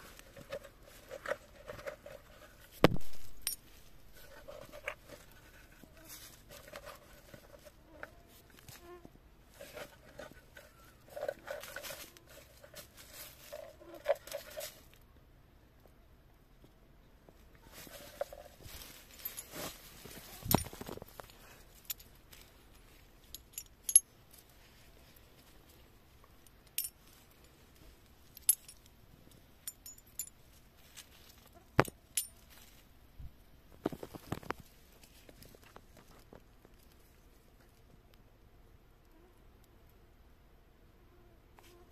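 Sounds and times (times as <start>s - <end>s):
hands rustling dry leaves: 9.5s - 15.0s, 17.7s - 25.8s
metal coins clinking: 23.3s - 24.1s, 26.8s - 27.0s, 28.4s - 28.8s, 29.6s - 30.4s.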